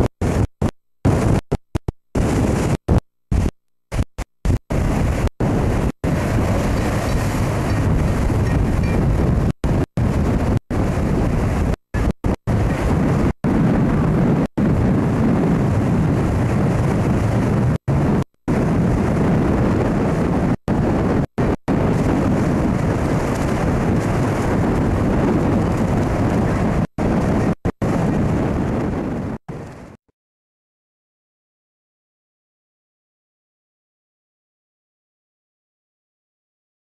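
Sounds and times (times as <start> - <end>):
wind blasting microphone: 0.0 - 30.0
surf breaking against seawall: 3.4 - 28.9.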